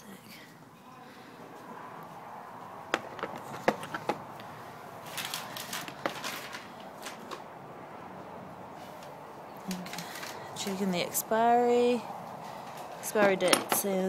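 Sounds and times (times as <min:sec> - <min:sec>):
cardboard rustling: 0:05.0 - 0:07.4.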